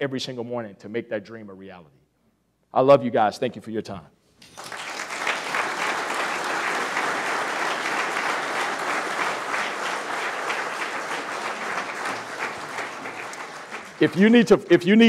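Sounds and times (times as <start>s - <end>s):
audience applauding: 4.4s - 15.0s.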